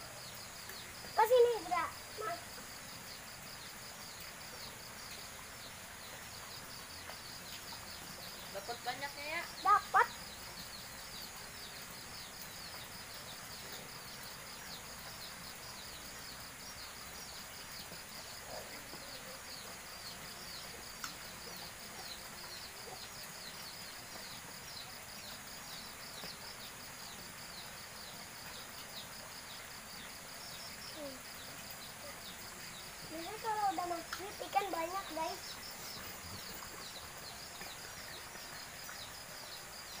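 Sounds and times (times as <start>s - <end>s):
faint click: 21.0s - 21.2s.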